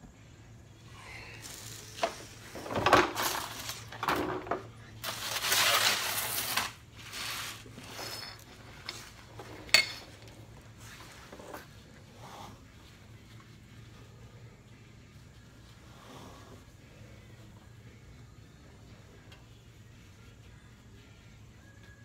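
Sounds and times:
scraping and rustling under a car: 1.4 - 12.6
metal tools clinking: 7.8 - 10.4.

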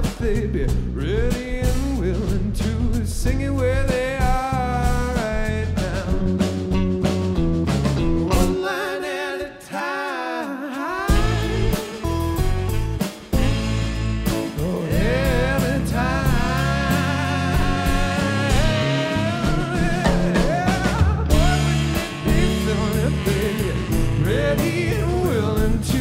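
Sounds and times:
man singing: 0.0 - 6.9, 8.3 - 12.7, 14.4 - 26.0
bass guitar: 0.0 - 8.8, 11.1 - 26.0
drum kit: 0.0 - 26.0
electric guitar: 6.0 - 26.0.

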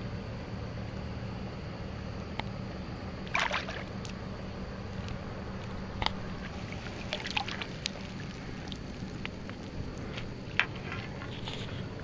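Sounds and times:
steady low hum: 0.0 - 12.0
short splashes: 3.3 - 3.9, 6.4 - 9.2
water sloshing and dripping: 3.3 - 4.2, 6.4 - 11.5.

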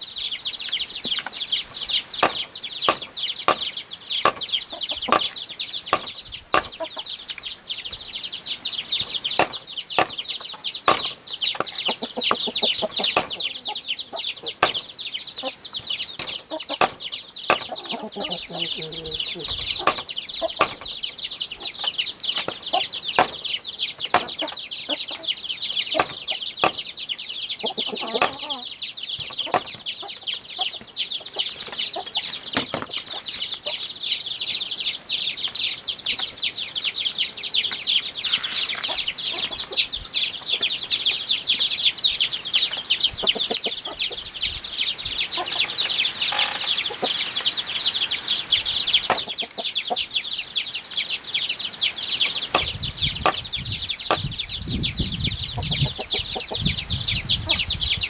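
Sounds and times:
fast high-pitched chirping: 0.0 - 32.5
knife chopping on wooden block: 2.2 - 3.7, 4.3 - 4.5, 6.0 - 6.8, 9.4 - 10.2, 10.9 - 11.7, 13.1 - 13.4, 14.6 - 14.9, 16.2 - 17.8, 19.8 - 20.9, 23.2 - 23.5, 24.1 - 24.4, 26.0 - 26.9, 28.1 - 28.4, 29.5 - 29.8.

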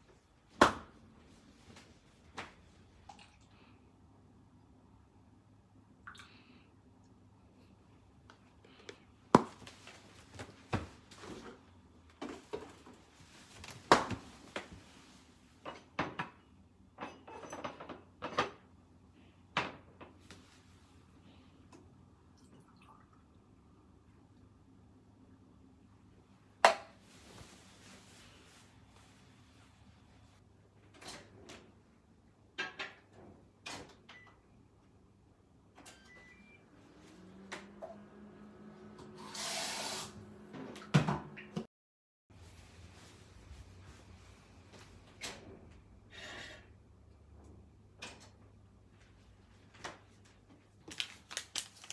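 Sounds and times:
knocks and clicks of kitchen items: 15.6 - 18.8, 19.4 - 20.3, 26.6 - 27.0, 32.4 - 34.4, 40.5 - 41.7, 47.3 - 48.6.

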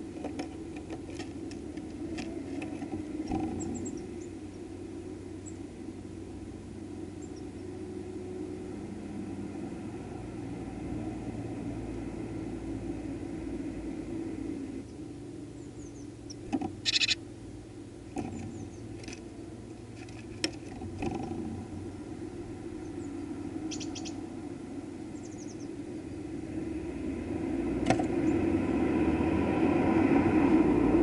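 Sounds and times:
low engine hum: 0.0 - 31.0
high bird chirps: 15.6 - 17.2, 22.8 - 24.2, 25.2 - 25.7.

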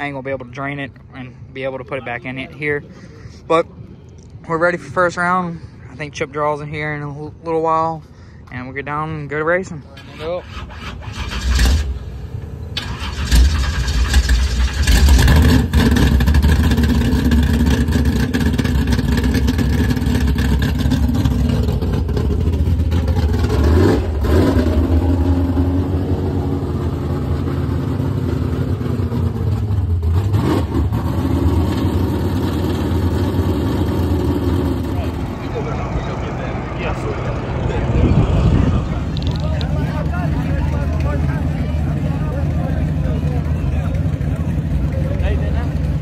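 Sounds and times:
race car engine starting and revving: 9.8 - 46.0
race car engine idling: 10.9 - 30.3, 31.6 - 46.0.

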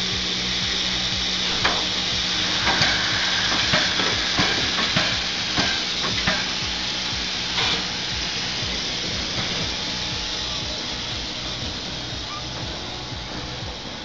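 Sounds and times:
steam locomotive hissing: 0.0 - 14.0
metallic clanks and knocks: 1.5 - 1.9, 2.5 - 6.6.

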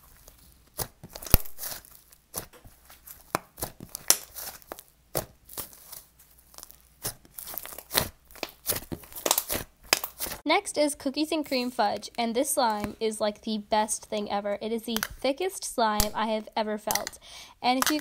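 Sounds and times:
slime crackling and tearing: 0.0 - 10.4, 16.0 - 18.0.

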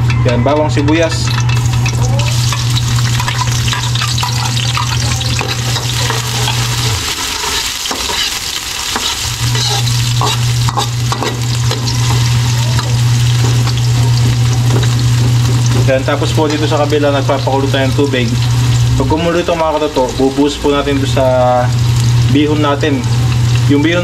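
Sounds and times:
garlic and onion sizzling in oil: 0.7 - 24.0
steady low hum: 1.1 - 24.0
metal ladle scraping a wok: 1.2 - 15.9.

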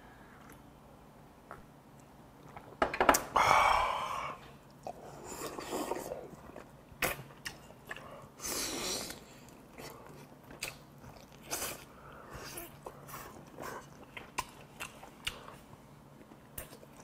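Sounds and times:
man chewing wet mouth sounds: 4.6 - 17.0.

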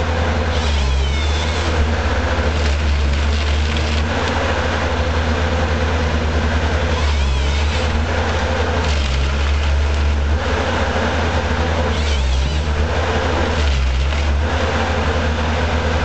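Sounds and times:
diesel engine running: 0.0 - 16.0
hydraulics working: 0.0 - 16.0.

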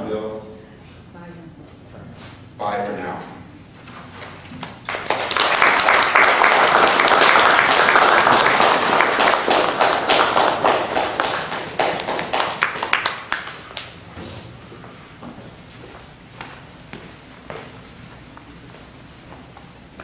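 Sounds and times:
audience applauding: 4.6 - 14.0.

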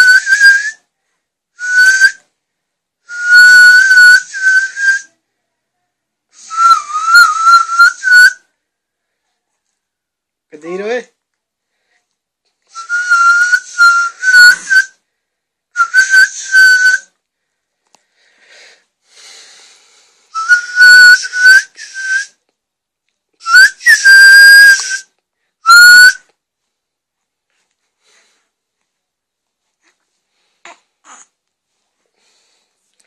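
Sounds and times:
loud high whistling: 6.4 - 8.4, 12.7 - 15.0, 20.4 - 22.3, 23.4 - 25.1, 25.7 - 26.2.

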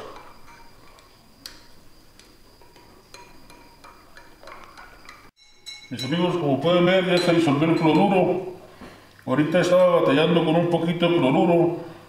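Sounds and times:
stirrer clinking against glass beaker: 0.0 - 8.4.

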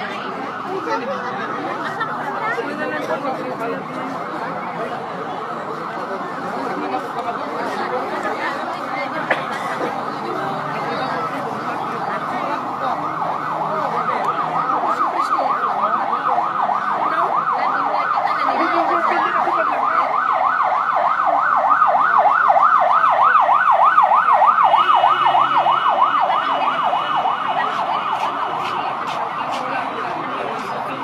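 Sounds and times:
siren yelping: 11.1 - 29.6.

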